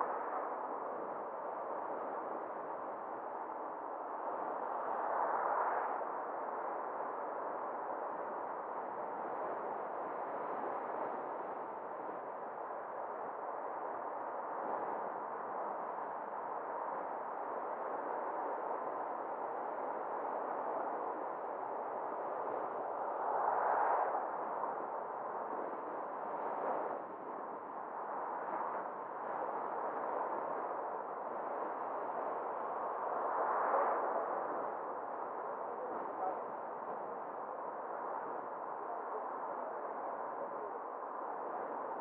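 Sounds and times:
car road and wind noise: 22.0 - 36.1.

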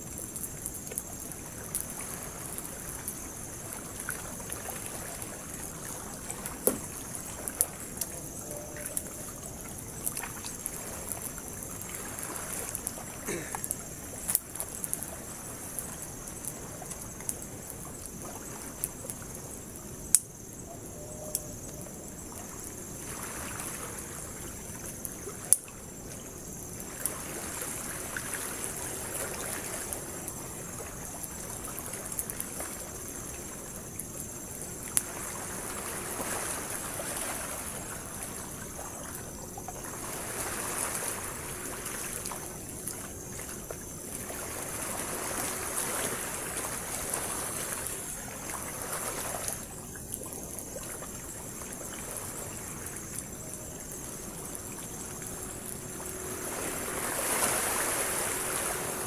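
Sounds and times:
sea waves washing on shore: 0.0 - 20.1, 22.2 - 59.0
campfire popping: 0.0 - 20.6, 24.6 - 27.2, 28.6 - 36.8, 51.4 - 59.0
insects chirring: 0.0 - 59.0.

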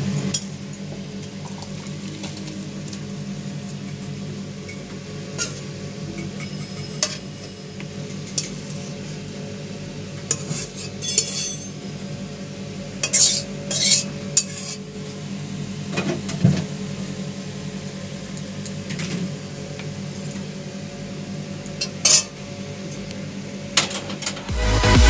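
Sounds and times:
electronic dance music: 24.5 - 25.0.

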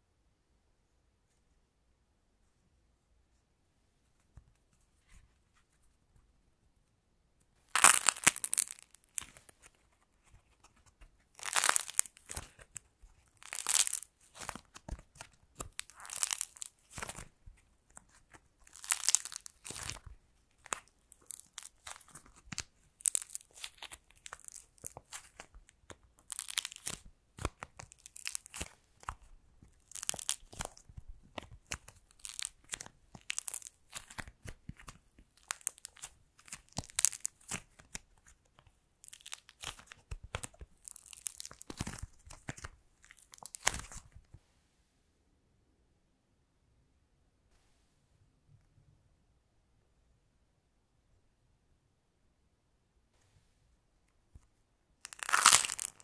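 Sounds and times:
dried clay cracking: 7.7 - 44.3, 55.0 - 56.0.

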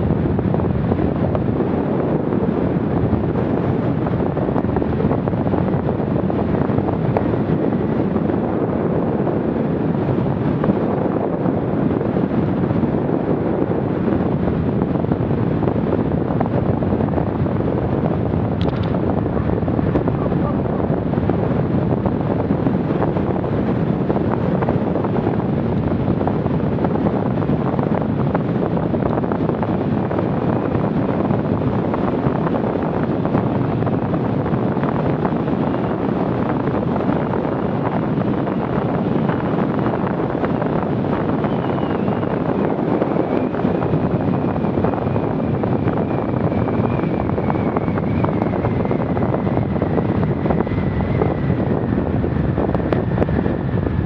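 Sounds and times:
wind rushing over microphone: 0.0 - 54.0
faint high whine: 41.2 - 51.6.

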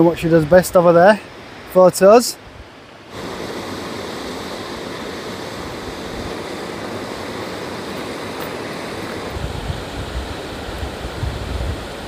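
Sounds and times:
waterfall rushing: 3.0 - 12.0.

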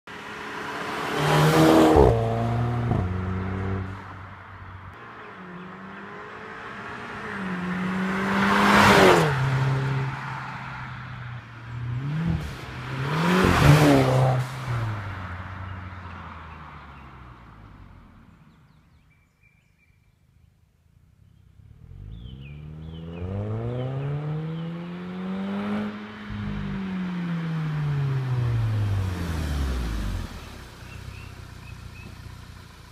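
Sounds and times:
car passing by: 5.3 - 10.8, 11.9 - 17.4.

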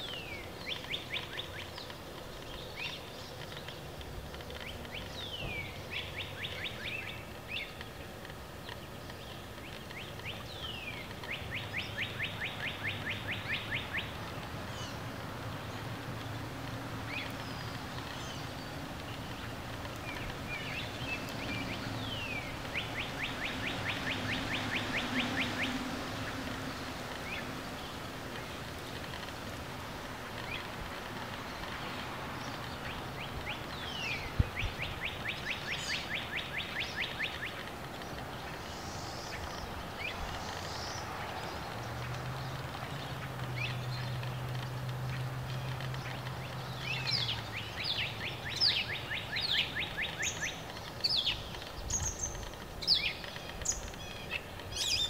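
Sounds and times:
small bird trilled song: 0.0 - 15.0, 17.1 - 29.2, 31.4 - 55.0
steady background hiss: 0.0 - 55.0.

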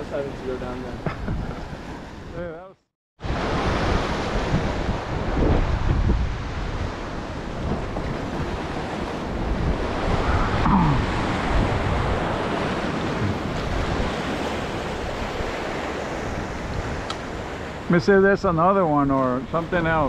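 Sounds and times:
wind on microphone: 1.0 - 2.4, 3.2 - 17.8
surf washing against rocks: 3.2 - 20.0.

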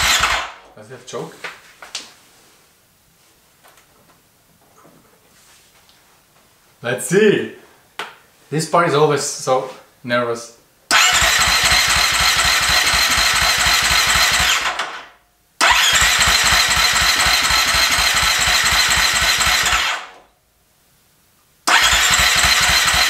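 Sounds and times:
electric starter cranking engine: 0.0 - 0.6, 10.9 - 20.2, 21.7 - 23.0.

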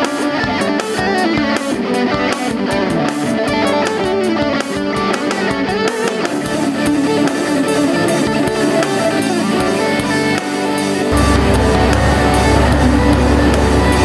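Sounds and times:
strummed electric guitar music: 0.0 - 14.0
low steady rumble: 11.1 - 14.0.

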